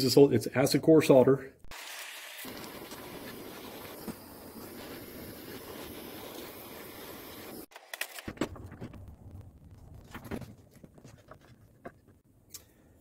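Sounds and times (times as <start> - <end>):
torch flame hissing: 2.4 - 7.7.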